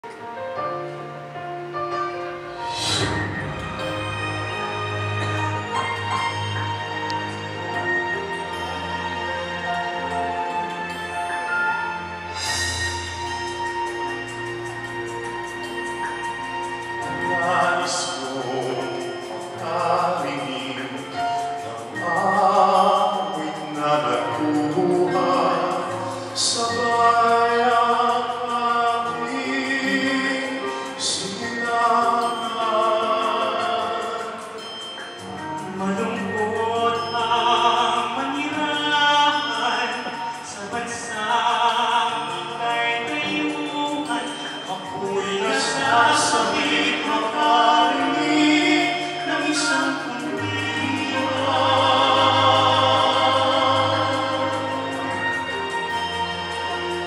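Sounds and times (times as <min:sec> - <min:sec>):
man singing slow pop song: 0:02.6 - 0:04.1, 0:16.9 - 0:57.0.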